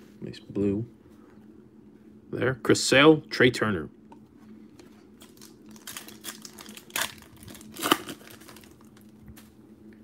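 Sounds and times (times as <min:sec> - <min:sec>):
foil wrapper tearing and crinkling: 0:05.2 - 0:09.1.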